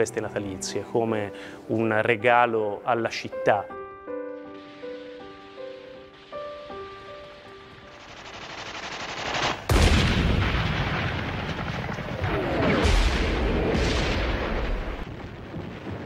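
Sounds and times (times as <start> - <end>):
explosions: 4.8 - 16.0
machine-gun fire: 7.9 - 11.9.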